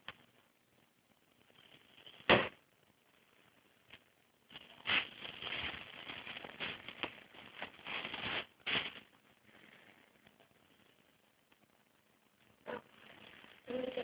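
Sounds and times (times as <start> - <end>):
paws scuffling: 4.8 - 9.0.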